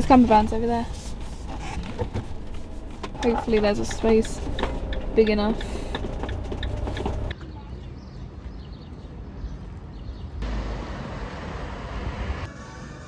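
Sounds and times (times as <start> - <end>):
van driving rumble from inside: 0.0 - 7.4.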